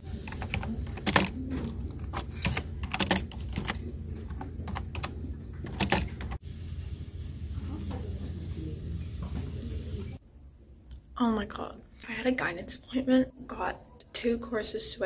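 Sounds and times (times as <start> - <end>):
keyboard typing clicks: 0.2 - 6.4.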